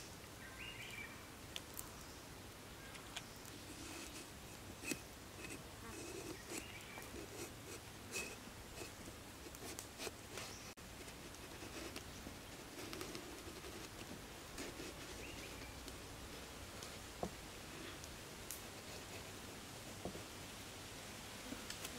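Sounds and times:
knife scraping eggplant skin: 0:03.7 - 0:10.6.

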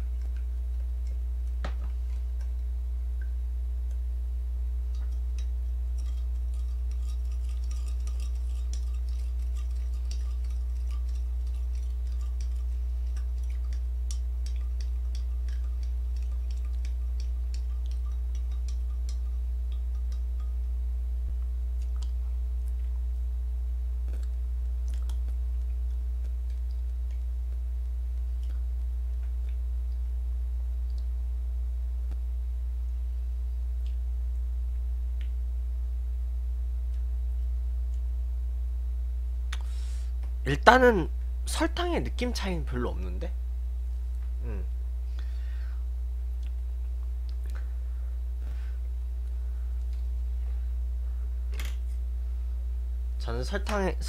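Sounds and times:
steady low hum: 0:00.0 - 0:54.0
spoon clinking in a cup: 0:05.0 - 0:20.6.

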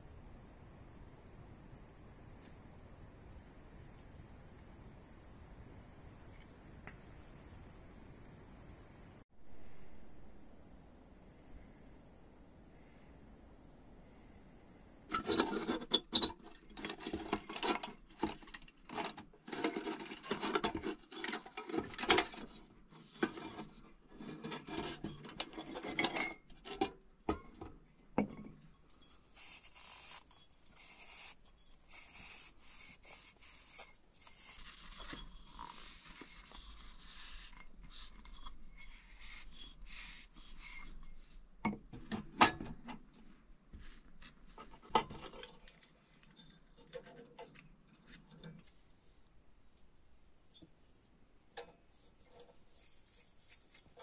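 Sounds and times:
metal lantern clicks and clatter: 0:15.1 - 0:29.2, 0:40.5 - 0:43.0
cloth rubbing inside glass: 0:29.0 - 0:41.5.

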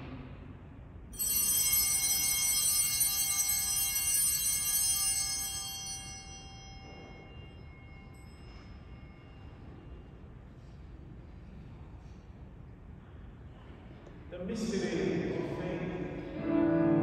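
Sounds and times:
altar bell ringing: 0:01.1 - 0:10.5.

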